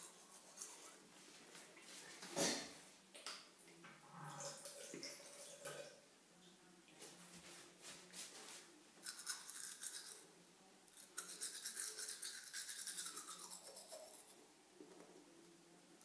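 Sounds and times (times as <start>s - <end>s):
toothbrush scrubbing teeth: 0.0s - 1.1s, 9.0s - 10.3s, 11.0s - 14.4s.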